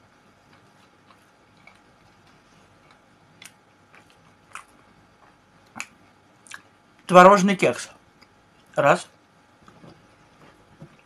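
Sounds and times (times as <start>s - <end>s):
faint close-up chewing: 0.1s - 7.0s
wet mouth clicks and smacks: 2.9s - 6.7s.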